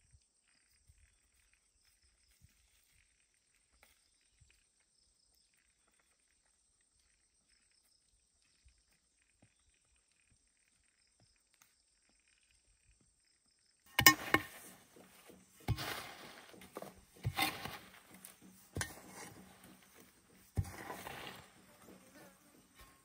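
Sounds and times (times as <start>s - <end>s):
metal hoe striking wood shavings: 13.9s - 23.0s
rustle of wood shavings: 14.2s - 23.0s.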